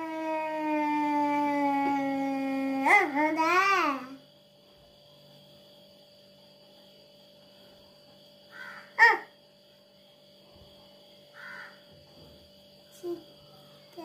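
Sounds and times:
crow cawing: 8.5s - 9.3s, 11.4s - 11.8s.

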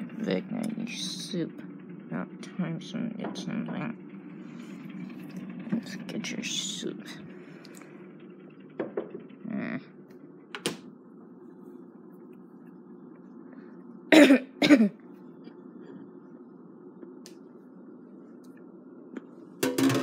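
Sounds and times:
steady low hum: 0.0s - 20.0s
person coughing: 14.1s - 15.0s.

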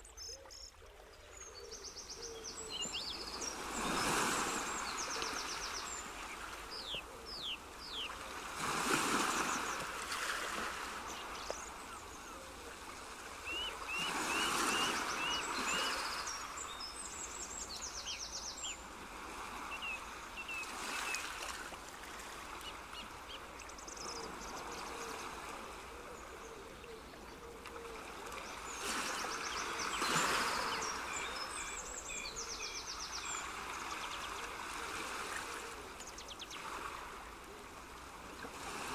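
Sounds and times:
birds chirping and trilling: 0.0s - 8.2s, 13.5s - 18.8s
rushing water: 0.0s - 38.9s.

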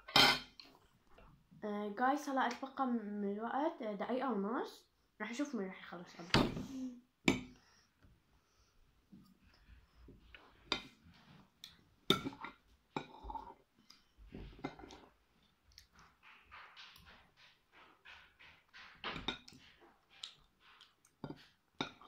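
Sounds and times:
quiet chewing: 9.2s - 22.0s.

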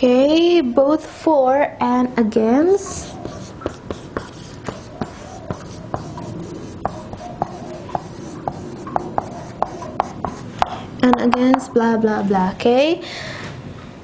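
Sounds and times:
marker squeaking on whiteboard: 2.8s - 11.6s.

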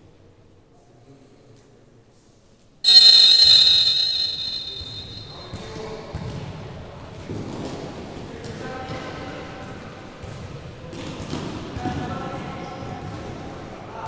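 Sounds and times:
referee's whistle: 2.8s - 5.6s.

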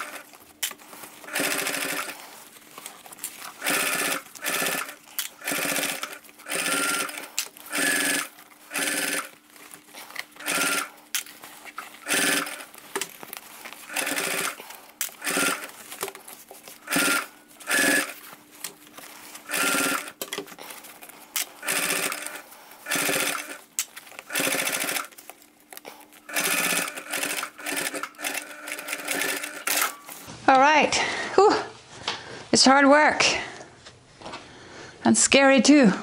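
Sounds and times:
sewing machine stitching: 0.0s - 2.3s, 3.3s - 9.4s, 10.0s - 13.1s, 13.8s - 15.8s, 16.7s - 18.3s, 19.4s - 20.4s, 21.4s - 25.2s, 26.2s - 30.0s.

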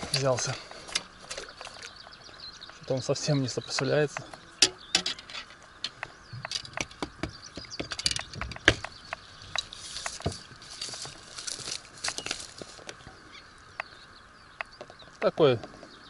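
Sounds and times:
clicks and knocks of fish and tackle: 3.7s - 13.0s
soft rustling: 9.6s - 13.0s.

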